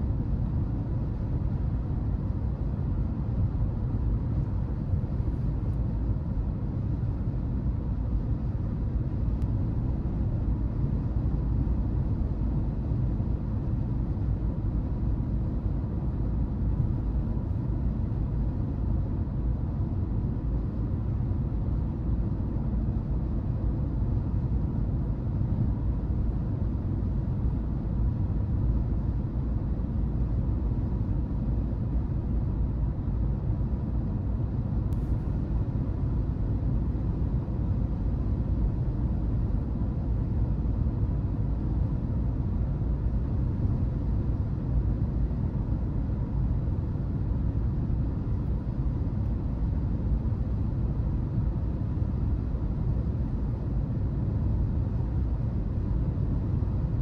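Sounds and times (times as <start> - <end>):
faint tick: 34.9 - 35.1.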